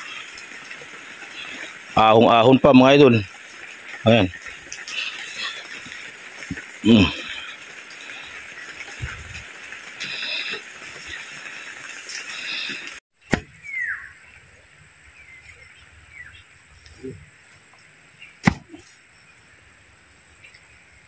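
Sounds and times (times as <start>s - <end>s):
steady hiss: 0.0s - 21.0s
pole thudding into soil: 13.3s - 13.7s, 18.4s - 18.9s.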